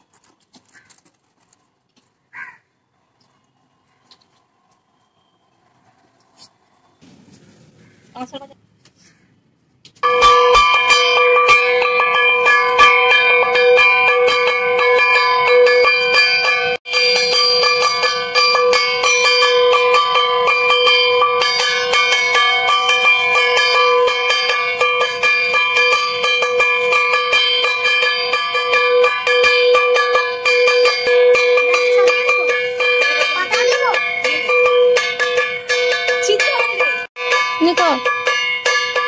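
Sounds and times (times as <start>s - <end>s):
bells ringing: 10.0s - 39.0s.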